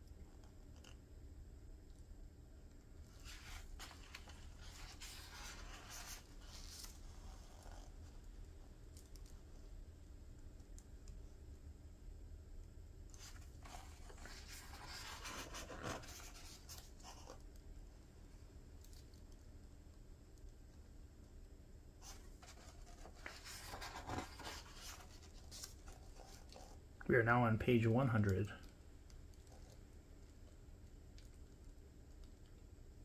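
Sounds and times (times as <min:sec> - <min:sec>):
paper pages rustling: 0:03.1 - 0:07.9, 0:13.2 - 0:17.4, 0:22.0 - 0:26.8.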